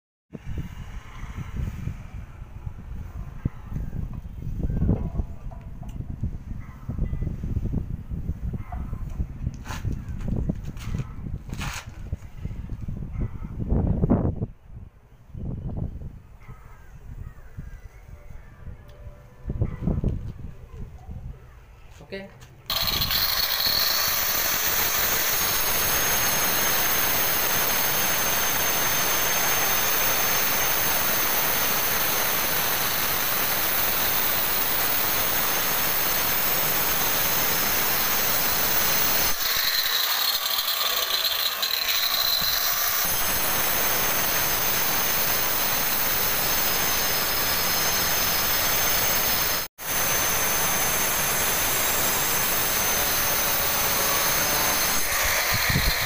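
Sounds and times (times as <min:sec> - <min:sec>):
stone cutter grinding whine: 0:22.7 - 0:56.0.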